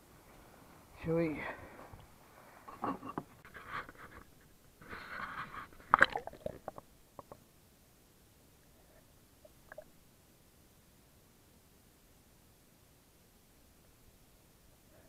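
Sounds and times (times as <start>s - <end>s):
water splashing: 5.8s - 6.8s
bubbles hissing: 5.9s - 7.4s.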